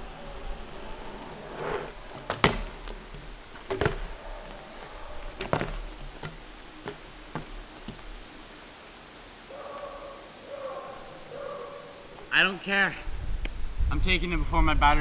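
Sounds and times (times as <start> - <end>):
bmx bike landing on asphalt: 1.9 - 8.2.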